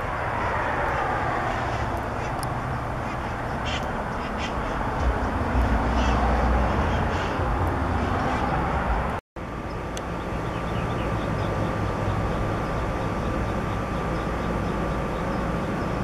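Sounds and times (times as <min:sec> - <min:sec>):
parrots squawking: 0:00.0 - 0:07.5
road traffic noise: 0:00.0 - 0:16.0
vehicle passing: 0:00.0 - 0:16.0.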